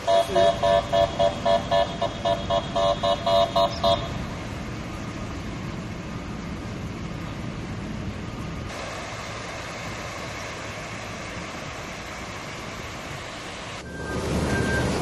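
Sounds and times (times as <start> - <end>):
vehicle horn honking: 0.0 - 4.2
rain and floodwater: 0.0 - 15.0.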